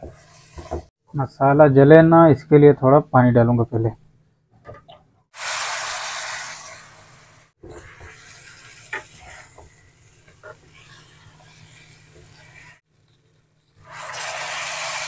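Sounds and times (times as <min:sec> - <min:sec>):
food sizzling in pan: 0:00.0 - 0:00.9, 0:05.4 - 0:12.8, 0:13.7 - 0:15.0
water sizzling in hot pan: 0:00.0 - 0:00.9, 0:05.4 - 0:12.9, 0:13.7 - 0:15.0.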